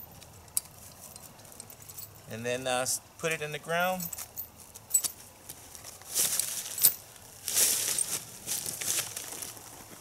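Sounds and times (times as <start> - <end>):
dry leaves rustling and crunching: 4.6 - 10.0.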